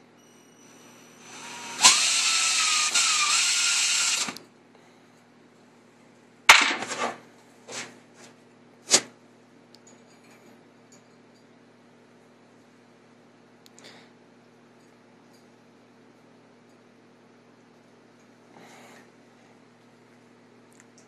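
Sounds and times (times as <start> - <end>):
cordless drill whirring: 0.6 - 4.4.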